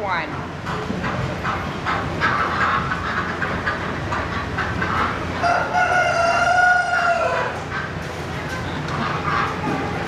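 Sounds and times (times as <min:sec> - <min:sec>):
rooster crowing: 0:05.4 - 0:07.6.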